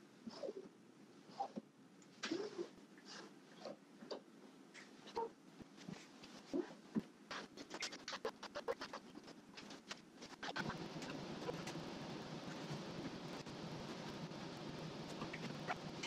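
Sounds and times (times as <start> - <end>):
steady even noise: 10.2 - 16.0.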